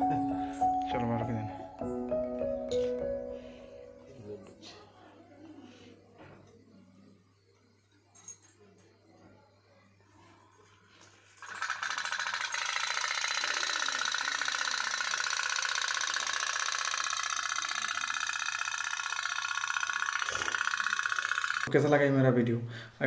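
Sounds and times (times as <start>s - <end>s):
toy steam boat engine tapping: 11.4s - 21.7s.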